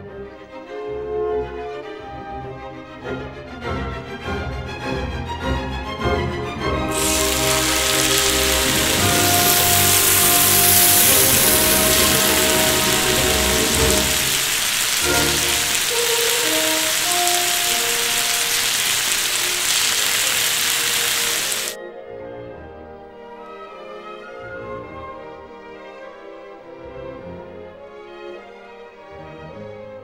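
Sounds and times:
background music: 0:02.4 - 0:28.0
food sizzling in a pan: 0:06.9 - 0:21.8.

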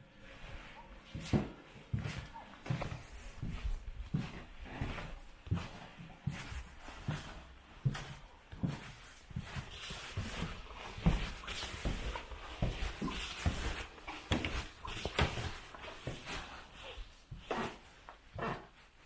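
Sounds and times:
soft rustling: 0:00.2 - 0:19.0
footsteps on wooden floorboards: 0:00.4 - 0:18.8.

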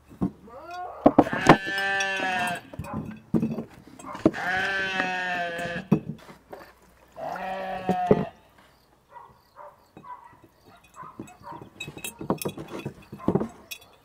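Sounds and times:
glass jars clinking: 0:00.0 - 0:06.2, 0:09.9 - 0:14.0
sheep or goat bleating: 0:00.5 - 0:02.7, 0:04.2 - 0:05.9, 0:07.2 - 0:08.4.

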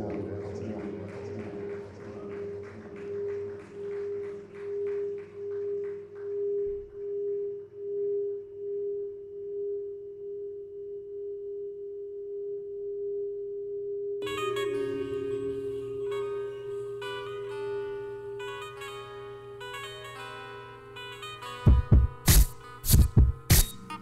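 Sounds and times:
held synthesizer tone: 0:14.2 - 0:22.0.

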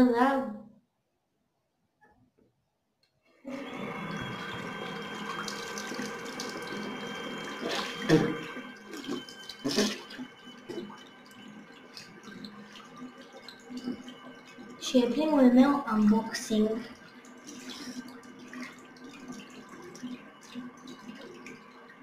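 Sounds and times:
electric toothbrush buzzing: 0:03.5 - 0:14.8.

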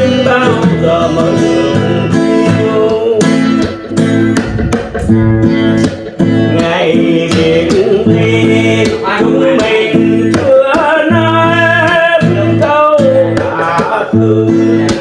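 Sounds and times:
acoustic guitar strumming chords: 0:00.0 - 0:15.0
man singing: 0:00.0 - 0:15.0.

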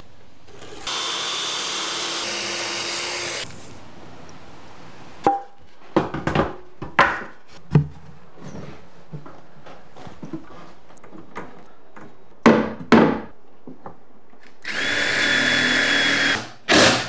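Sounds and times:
circular saw cutting plywood: 0:00.5 - 0:03.5.

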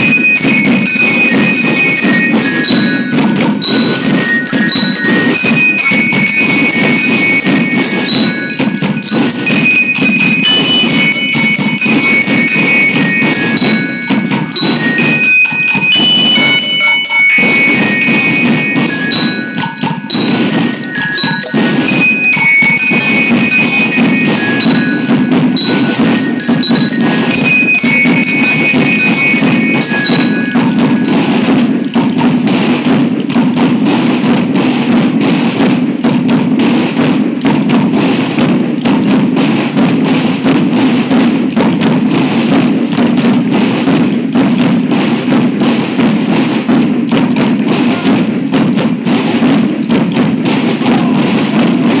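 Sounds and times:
bell lyres playing melody: 0:00.0 - 0:33.4
snare and bass drums: 0:00.0 - 0:52.0.

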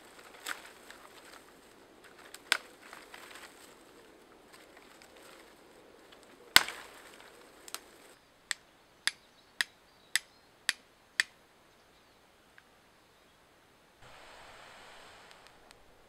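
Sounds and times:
dry twig snapping: 0:00.1 - 0:09.2
flint striker strikes: 0:08.5 - 0:11.4.

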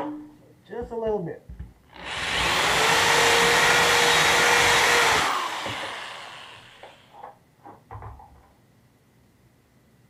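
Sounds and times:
cordless drill whining: 0:01.9 - 0:07.2
drill winding down: 0:01.9 - 0:07.2.

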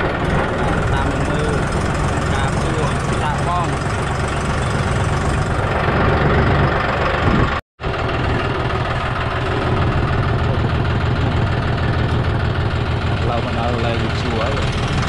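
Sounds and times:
tractor diesel engine running: 0:00.0 - 0:15.0.

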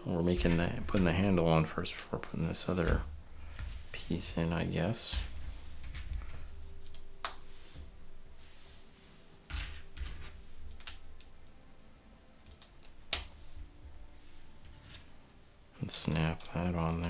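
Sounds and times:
plastic pieces clicking: 0:09.5 - 0:11.6, 0:12.4 - 0:13.4.

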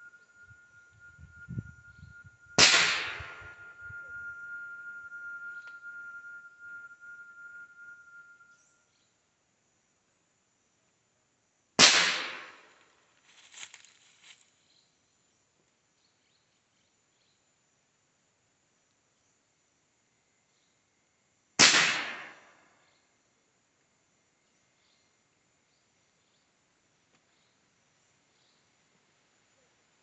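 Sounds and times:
air rifle shot: 0:02.6 - 0:03.5, 0:11.8 - 0:12.7, 0:21.6 - 0:22.4.

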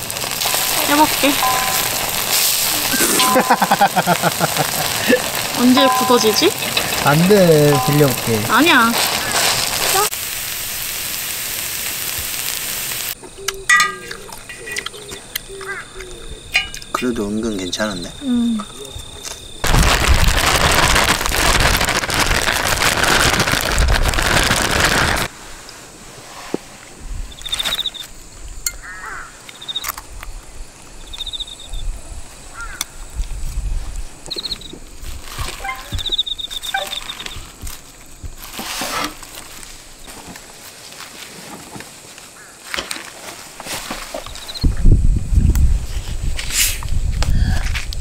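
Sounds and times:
pancake batter sizzling: 0:00.0 - 0:13.2.

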